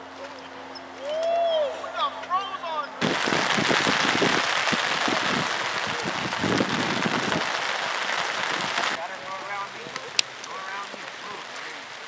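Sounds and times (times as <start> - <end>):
low rumbling: 3.0 - 9.0
rain falling: 3.0 - 12.0.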